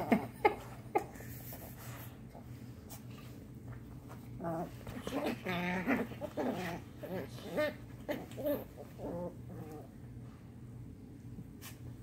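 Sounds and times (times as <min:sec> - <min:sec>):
dogs vocalizing in play: 0:04.3 - 0:10.1.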